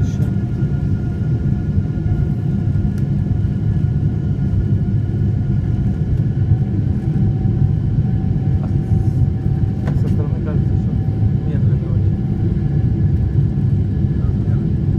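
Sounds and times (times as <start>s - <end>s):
faint engine whine: 0.0s - 14.9s
jet engines rumbling: 0.0s - 14.9s.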